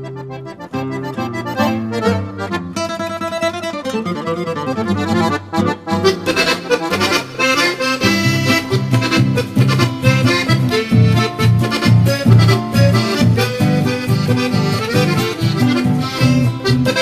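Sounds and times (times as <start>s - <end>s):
accordion-led folk music: 0.0s - 17.0s.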